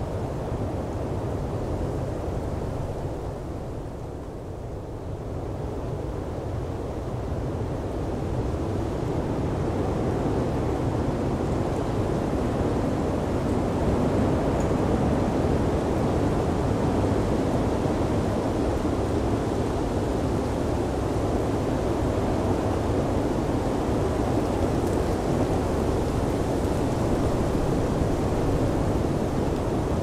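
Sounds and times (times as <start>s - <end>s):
blizzard wind rushing: 12.6s - 30.0s.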